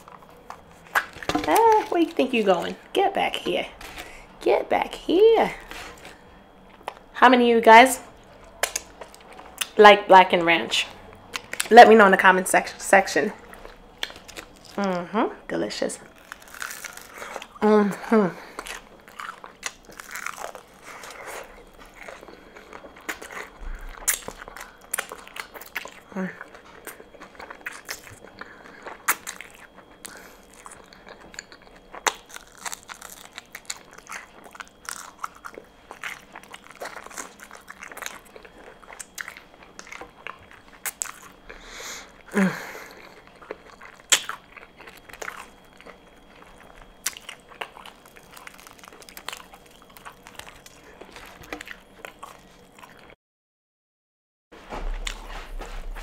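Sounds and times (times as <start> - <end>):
crunching fried chicken: 0.0 - 2.8, 13.4 - 14.9, 16.0 - 53.2
wet chewing: 0.0 - 2.8, 13.4 - 14.9, 16.1 - 17.6, 18.4 - 53.2.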